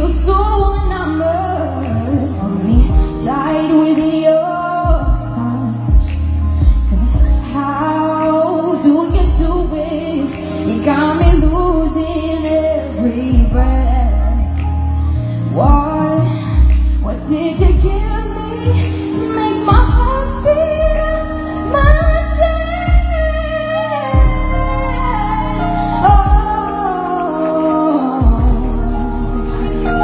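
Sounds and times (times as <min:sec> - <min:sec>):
bass-heavy amplified music: 0:00.0 - 0:30.0
woman singing into microphone: 0:00.0 - 0:30.0.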